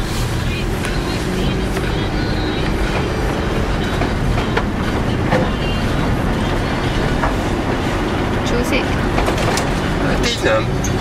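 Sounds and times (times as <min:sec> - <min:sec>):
tyres and engine rumbling: 0:00.0 - 0:11.0.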